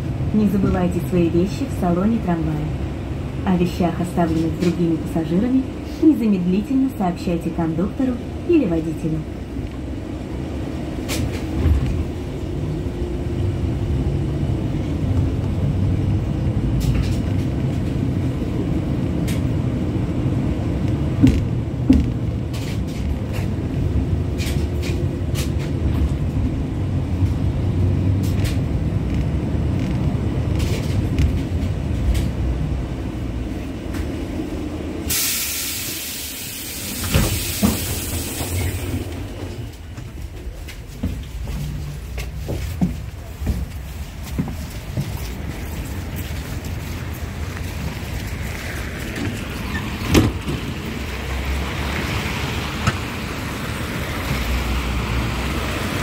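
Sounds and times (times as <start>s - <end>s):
tram rumbling on rails: 0.0s - 56.0s
loud hiss: 35.1s - 39.1s.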